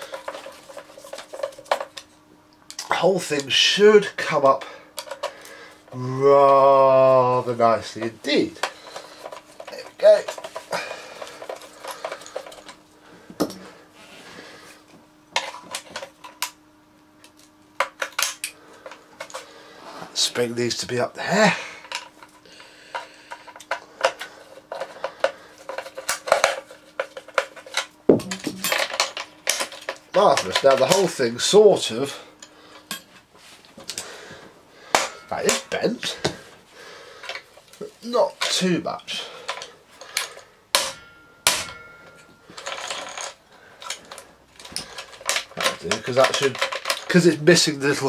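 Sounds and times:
metal parts clicking and clanking: 0.0 - 2.1, 7.5 - 12.8, 21.8 - 33.2, 34.9 - 36.3, 37.2 - 48.0.

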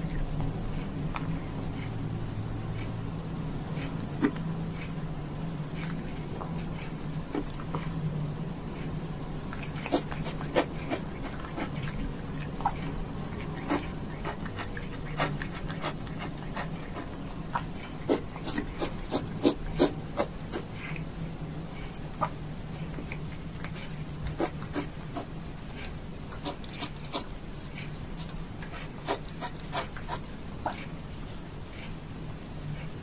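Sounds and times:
cat chewing crunchily: 5.7 - 8.1, 8.8 - 31.0.

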